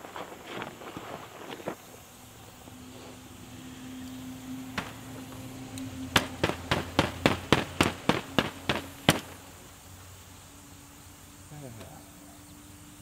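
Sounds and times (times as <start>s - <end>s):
rapid sharp knocks: 4.6s - 5.4s, 6.1s - 9.5s.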